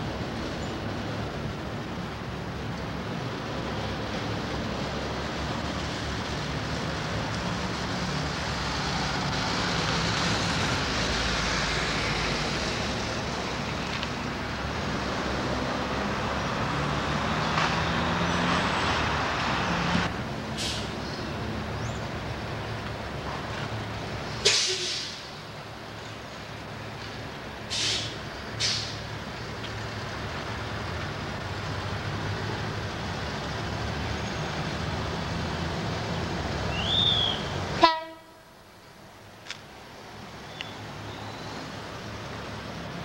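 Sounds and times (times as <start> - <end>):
train running noise: 0.0 - 43.0
diesel locomotive engine running: 18.7 - 43.0
short hiss: 20.6 - 20.9, 24.4 - 25.3, 27.7 - 29.0.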